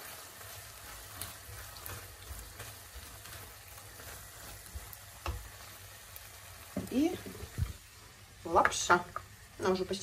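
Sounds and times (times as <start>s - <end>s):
minced meat sizzling in a pan: 0.0s - 10.0s
spatula tapping and scraping: 0.1s - 5.9s.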